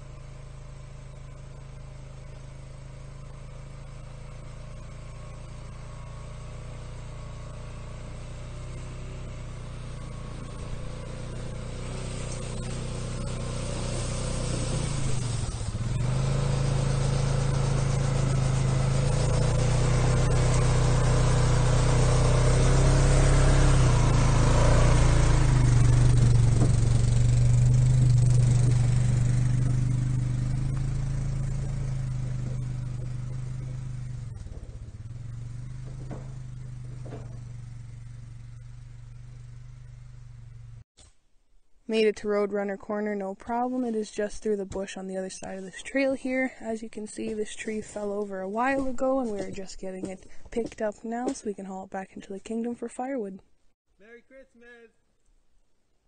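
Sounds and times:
atv engine running: 0.0 - 40.8, 43.4 - 53.3.

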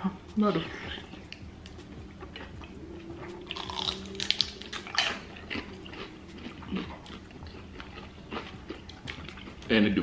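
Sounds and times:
chewing mouth smacks: 3.4 - 9.7.

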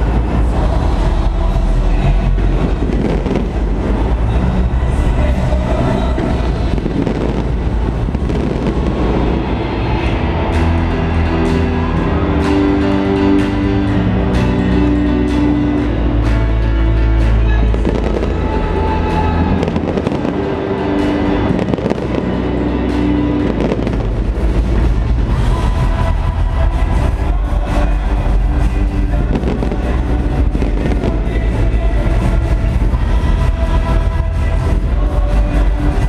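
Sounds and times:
heavy low rumble: 0.0 - 36.0
loud music: 0.0 - 36.0
fireworks bangs: 2.4 - 4.4, 5.0 - 10.0, 28.6 - 31.6.

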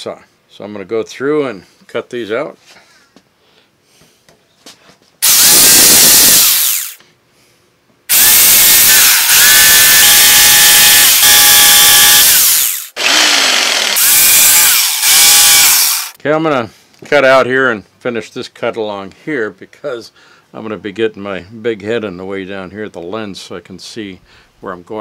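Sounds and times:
jigsaw cutting wood: 5.2 - 7.0, 8.1 - 16.2.

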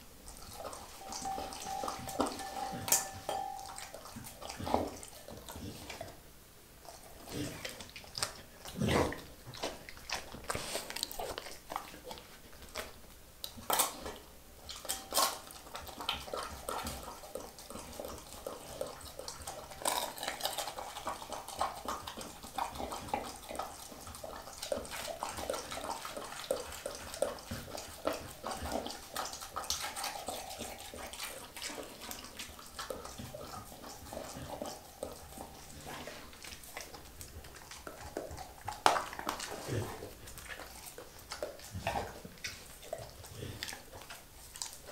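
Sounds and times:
dog licking and chewing: 0.0 - 6.2, 6.8 - 44.9
teeth clicking on glass bowl: 0.4 - 5.0.

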